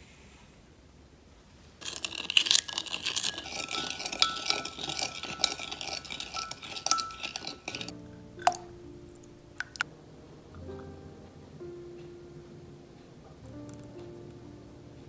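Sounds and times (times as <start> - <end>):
utensil stirring in glass cup: 1.8 - 8.7, 9.6 - 9.8
soft background music: 3.4 - 15.0.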